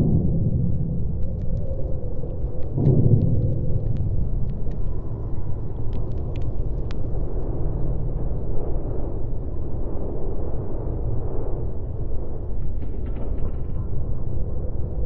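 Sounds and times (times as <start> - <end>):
deep continuous rumble: 0.0 - 15.0
faint crackling ticks: 1.2 - 7.4.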